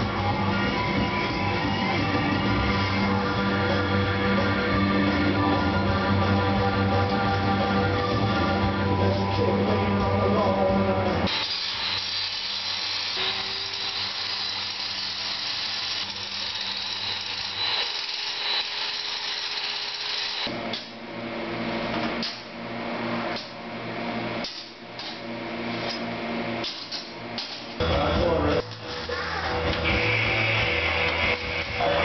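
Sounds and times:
angle grinder grinding steel: 11.3 - 20.5.

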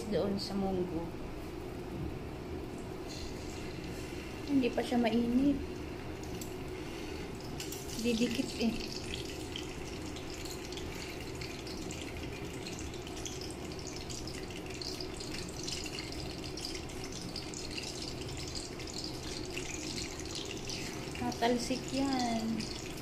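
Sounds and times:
fish sizzling in oil: 2.9 - 23.0
oil crackling and popping: 7.4 - 23.0.

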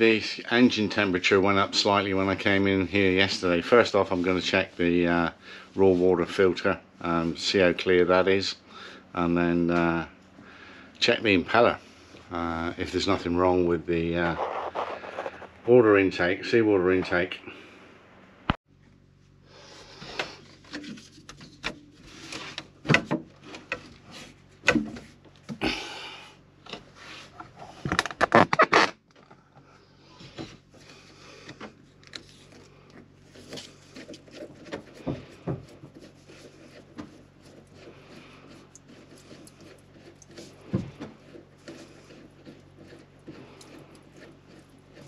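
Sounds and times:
faint steady hum: 0.0 - 45.0
handling knocks rubs and clicks: 14.2 - 15.7, 26.7 - 45.0.

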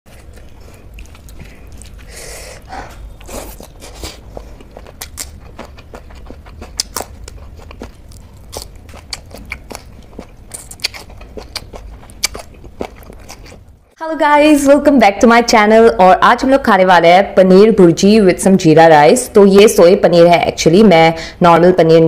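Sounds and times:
chewing and crunching: 0.1 - 14.0.

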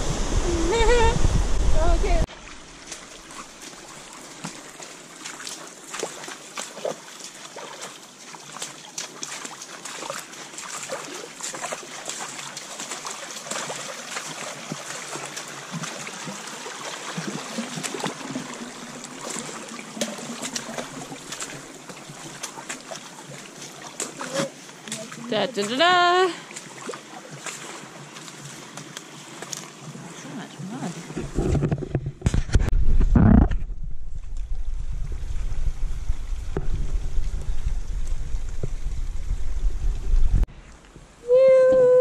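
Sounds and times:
running water trickling: 0.3 - 31.8
boots splashing through water and mud: 2.2 - 31.6.

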